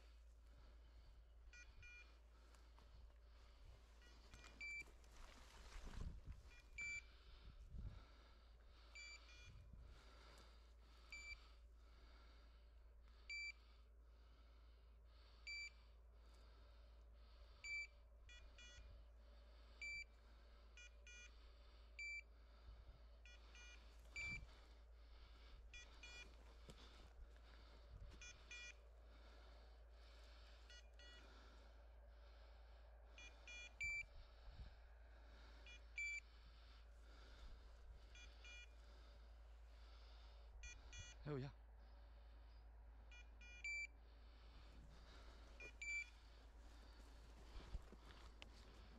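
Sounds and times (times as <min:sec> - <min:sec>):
tracking collar beeping: 0:01.4 - 0:02.3, 0:03.8 - 0:07.2, 0:08.9 - 0:09.8, 0:11.1 - 0:11.4, 0:13.3 - 0:13.6, 0:15.4 - 0:15.8, 0:17.6 - 0:19.0, 0:19.8 - 0:22.4, 0:23.2 - 0:24.8, 0:25.6 - 0:27.0, 0:27.9 - 0:29.0, 0:30.5 - 0:31.4, 0:33.1 - 0:34.2, 0:35.6 - 0:36.4, 0:38.0 - 0:39.1, 0:40.6 - 0:41.5, 0:43.0 - 0:44.0, 0:44.9 - 0:47.0.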